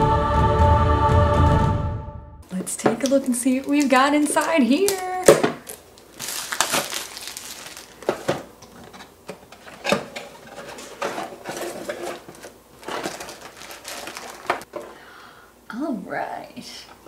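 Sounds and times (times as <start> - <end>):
plastic bag handled: 2.5 - 14.7
plastic shrink wrap crinkling: 2.6 - 14.7.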